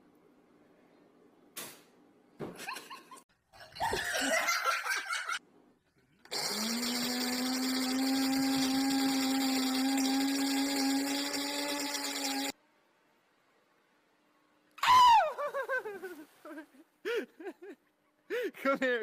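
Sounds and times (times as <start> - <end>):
small electric motor whining: 6.3 - 12.6.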